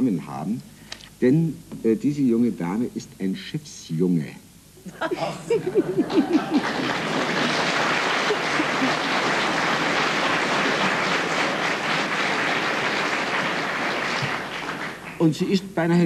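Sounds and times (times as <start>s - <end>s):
audience laughter: 4.9s - 14.5s
audience applauding: 5.7s - 15.6s.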